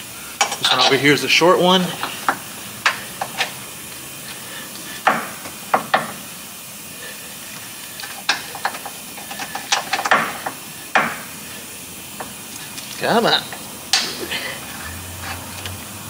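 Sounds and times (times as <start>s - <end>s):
steady hiss: 0.0s - 16.0s
metal bolts clicking and knocking: 0.4s - 1.1s, 8.1s - 11.2s.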